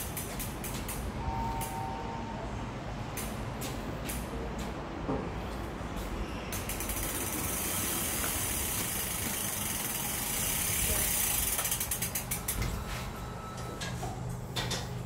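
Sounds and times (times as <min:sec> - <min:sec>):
bicycle freewheel ticking: 0:06.5 - 0:12.6.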